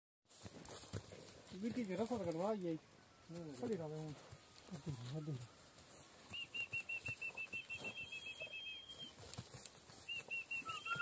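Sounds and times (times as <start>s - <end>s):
bird whistling fast high notes: 10.1s - 11.0s.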